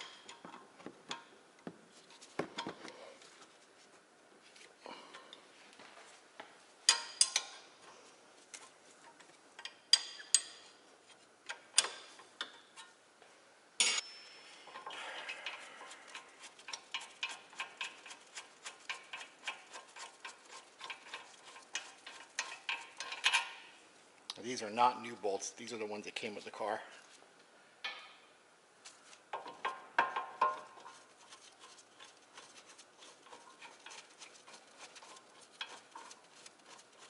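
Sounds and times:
metal tool clanking on bolt: 6.9s - 7.6s, 13.8s - 15.6s, 20.8s - 23.6s.

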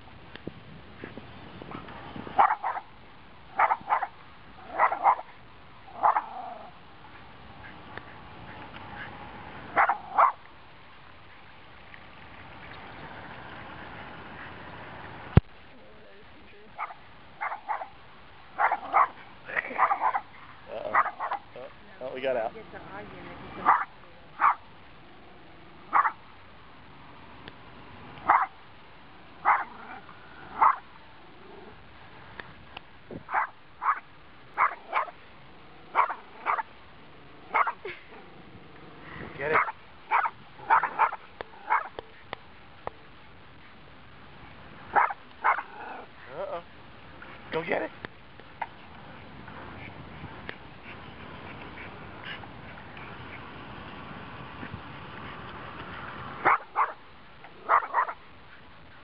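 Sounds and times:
small dog barking: 2.4s - 2.9s, 3.6s - 5.3s, 5.9s - 6.7s, 9.7s - 10.4s, 16.8s - 18.0s, 18.6s - 21.5s, 23.6s - 24.7s, 25.9s - 26.2s, 28.2s - 28.6s, 29.4s - 30.8s, 33.3s - 35.2s, 35.9s - 36.7s, 37.5s - 38.0s, 39.5s - 42.0s, 44.9s - 46.1s, 56.4s - 58.2s.

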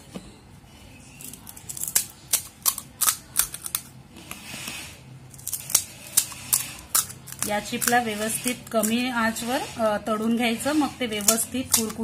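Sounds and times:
crisp shells cracking: 1.2s - 4.0s, 5.3s - 8.0s.

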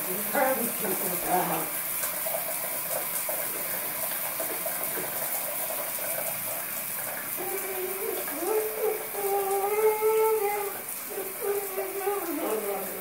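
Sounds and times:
shower water spraying: 0.0s - 13.0s
low voice-like tone: 7.4s - 13.0s.

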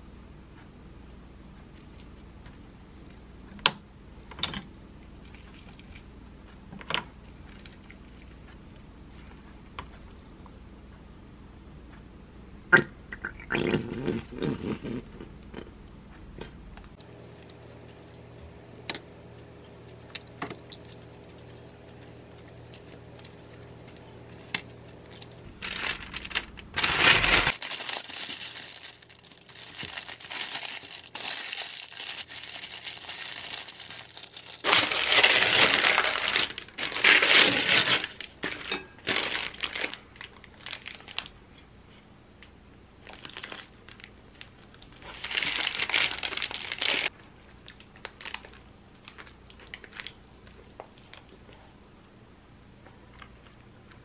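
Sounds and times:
low steady hum: 0.0s - 54.0s
paper crinkling and rustling: 19.4s - 41.4s, 43.0s - 47.1s, 47.7s - 50.2s.

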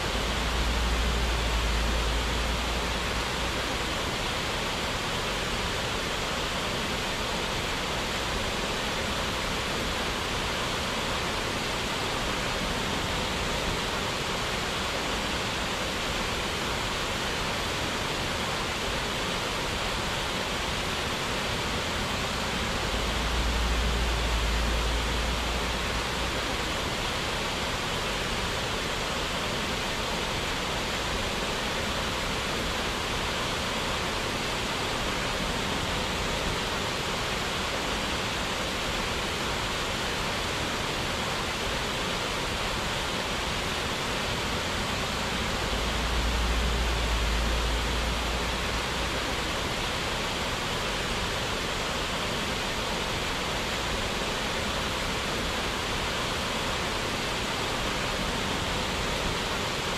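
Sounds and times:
rush of falling water: 0.0s - 59.9s
low rumble: 0.1s - 3.8s, 22.6s - 26.4s, 45.1s - 49.3s.

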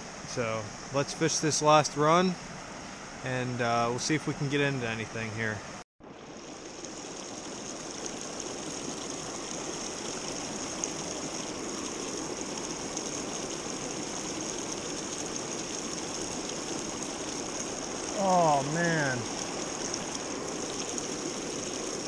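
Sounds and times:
stream rushing over rocks: 6.0s - 22.0s.

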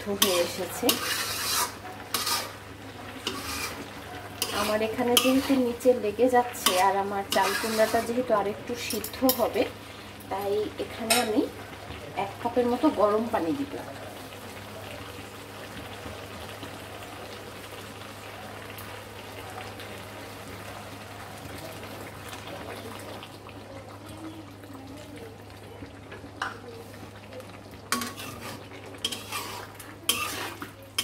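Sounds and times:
spatula scraping a wok: 0.0s - 9.6s, 27.9s - 31.0s
food sizzling in a wok: 0.0s - 31.0s.

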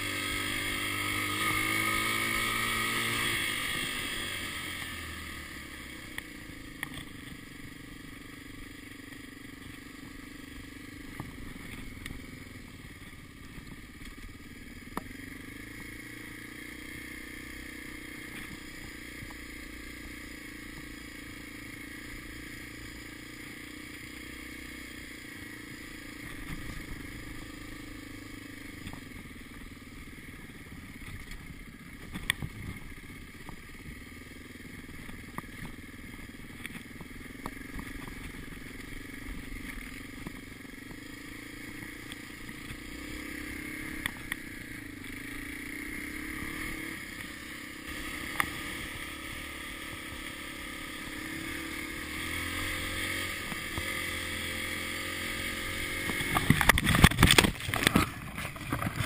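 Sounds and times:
dirt bike engine revving: 0.0s - 59.0s
bike knocking over rocks: 56.3s - 59.0s.

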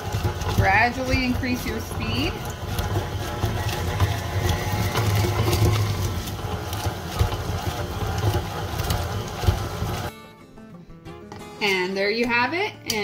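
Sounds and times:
stand mixer motor humming: 0.0s - 10.1s.

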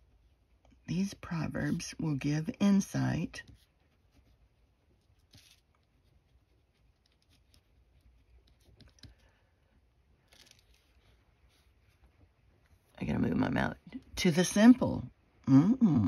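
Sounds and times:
pen scratching on paper: 3.4s - 9.2s.

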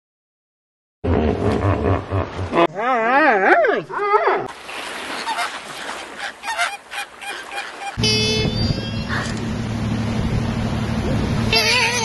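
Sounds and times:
short honking animal calls: 7.6s - 9.4s, 11.5s - 12.0s
low steady drone: 8.0s - 12.0s.

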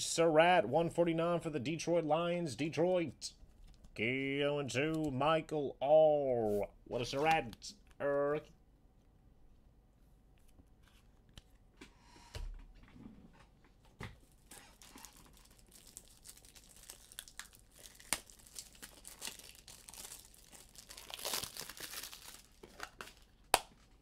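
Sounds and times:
wrappers crinkling and tearing: 14.3s - 24.0s.

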